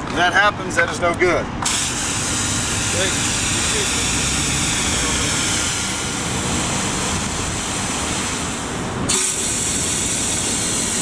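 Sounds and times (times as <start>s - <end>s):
pressure washer water spraying: 1.6s - 11.0s.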